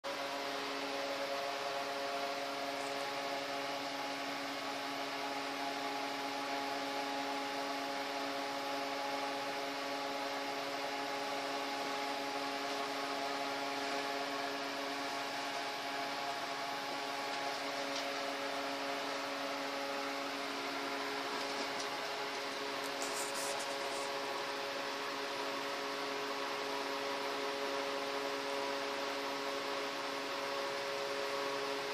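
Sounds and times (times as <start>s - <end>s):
fan humming with hiss: 0.1s - 31.9s.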